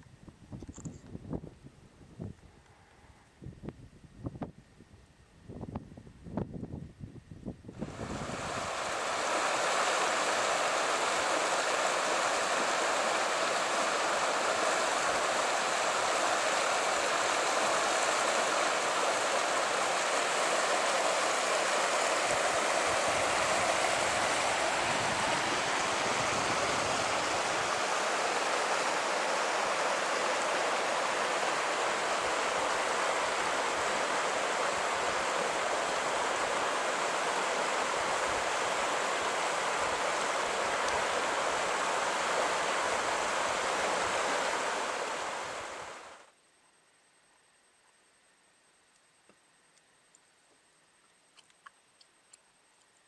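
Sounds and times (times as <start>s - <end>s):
creek rushing over rocks: 7.8s - 46.3s.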